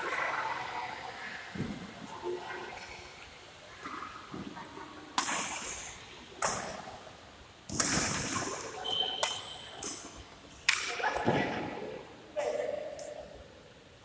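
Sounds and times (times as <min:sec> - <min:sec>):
rackets hitting shuttlecock: 0:07.7 - 0:11.4.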